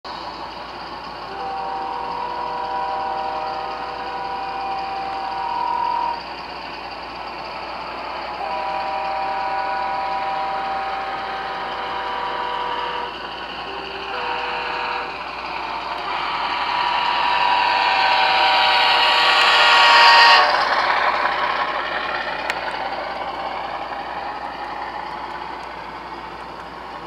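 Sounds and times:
model locomotive running noise: 0.1s - 27.0s
diesel air horn from small speaker: 1.3s - 6.2s, 8.4s - 16.2s.

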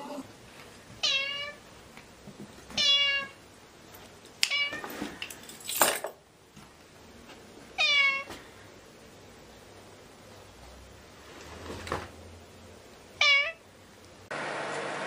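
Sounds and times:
noisy rustle: 0.2s - 13.0s
cat meowing: 1.0s - 1.6s, 2.8s - 3.4s, 4.5s - 4.8s, 7.8s - 8.4s, 13.2s - 13.6s.

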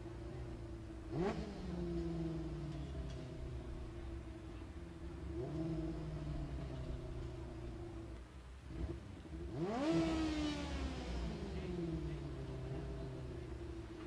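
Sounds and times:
race car engines idling: 0.0s - 14.0s
engine revving sharply: 1.1s - 3.4s, 8.7s - 13.3s.

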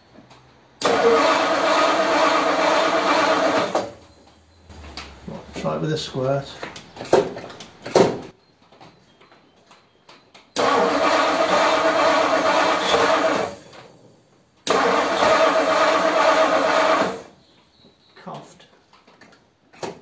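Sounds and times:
engine cranking on starter: 0.8s - 8.3s, 10.6s - 14.0s, 14.6s - 17.4s.

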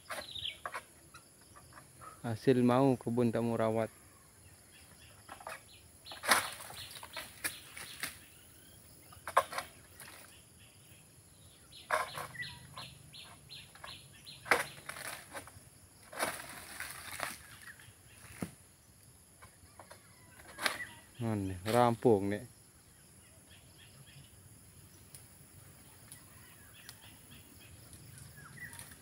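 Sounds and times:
fronds rustling: 4.6s - 10.6s, 11.6s - 22.2s, 24.8s - 29.0s
fronds cracking and snapping: 5.3s - 8.3s, 13.7s - 18.6s, 27.8s - 29.0s.

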